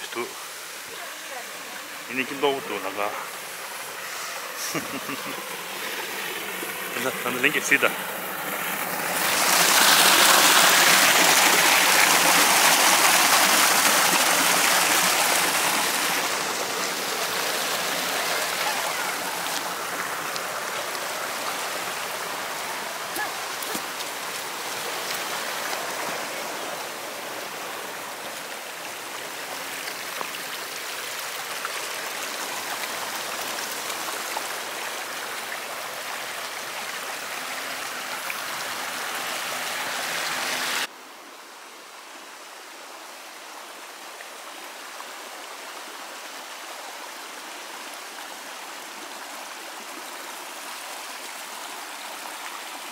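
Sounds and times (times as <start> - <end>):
forest stream rushing: 0.0 - 52.9.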